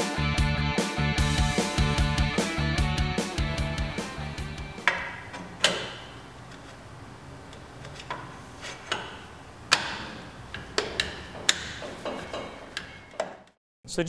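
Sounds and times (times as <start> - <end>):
metal tubes clinking and knocking: 7.8 - 13.6.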